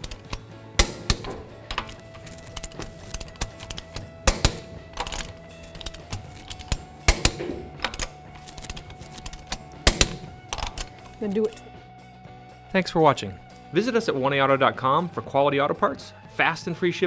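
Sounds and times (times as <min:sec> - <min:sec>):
ratchet ticking: 0:00.0 - 0:11.6
socket clinking on nuts: 0:00.0 - 0:11.6
torque wrench clicks: 0:00.0 - 0:11.6.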